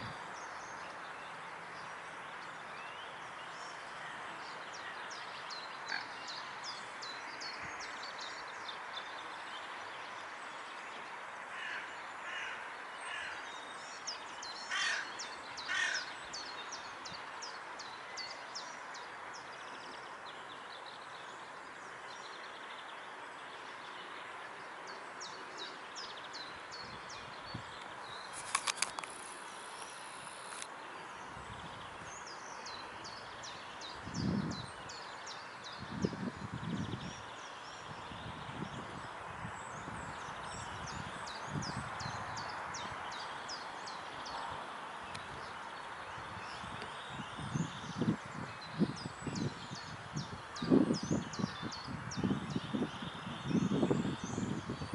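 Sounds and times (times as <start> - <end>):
steady background noise: 0.0 - 36.6
small birds singing: 0.0 - 54.9
crow cawing: 11.5 - 13.4, 14.7 - 15.1, 15.7 - 16.1.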